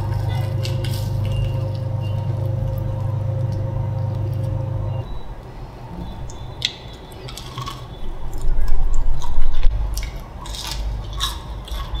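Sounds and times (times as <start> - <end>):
crisp crust crunching: 0.0 - 3.7, 6.6 - 12.0.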